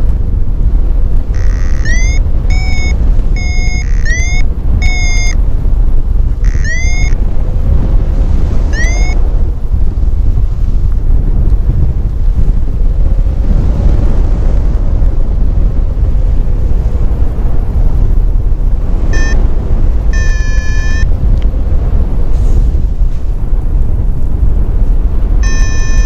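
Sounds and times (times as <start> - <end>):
wind buffeting microphone: 0.0 - 26.0
electronic beeps: 1.4 - 5.4, 6.4 - 7.2, 8.7 - 9.2, 19.1 - 19.4, 20.2 - 21.1, 25.4 - 26.0.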